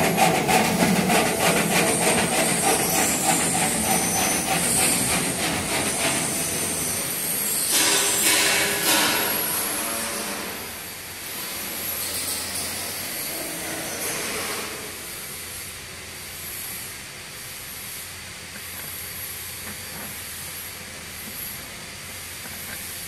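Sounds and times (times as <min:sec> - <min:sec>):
peeling machine running: 0:00.0 - 0:07.8.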